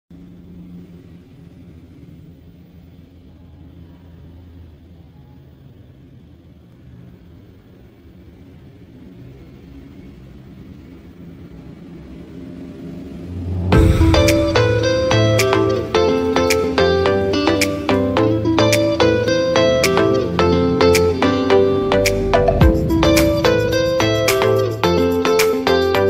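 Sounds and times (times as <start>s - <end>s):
faint hum: 0.1s - 26.0s
low background rumble: 10.8s - 17.0s, 18.2s - 25.1s.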